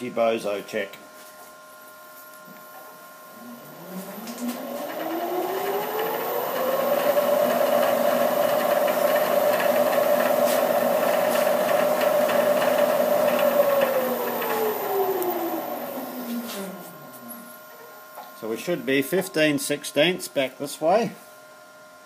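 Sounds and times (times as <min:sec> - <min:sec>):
milling machine motor whine: 0:02.6 - 0:19.0.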